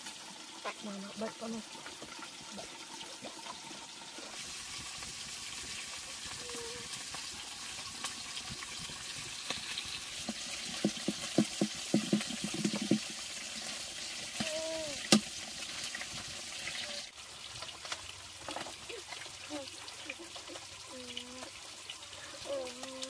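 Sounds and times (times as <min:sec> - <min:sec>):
running water hissing: 0:00.0 - 0:23.0
knocks and clatters: 0:10.7 - 0:13.2.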